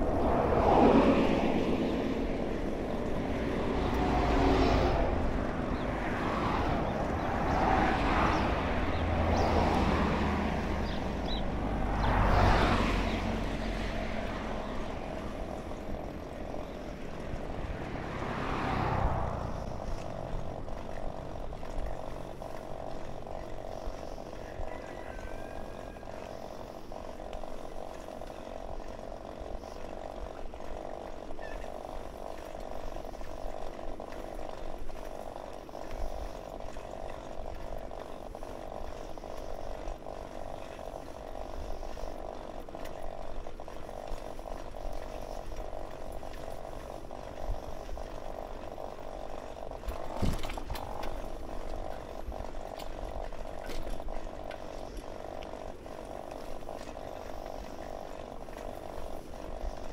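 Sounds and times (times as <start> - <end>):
bicycle rattling buzz: 0.0 - 59.9
wind rumble on microphone: 0.0 - 59.9.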